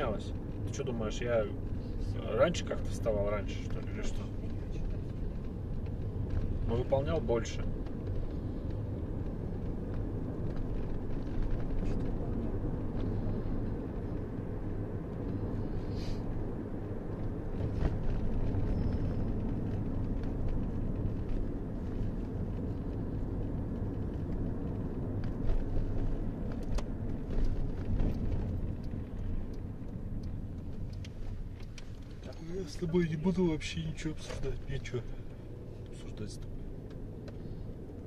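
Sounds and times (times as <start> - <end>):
car road and engine rumble: 0.0 - 38.0.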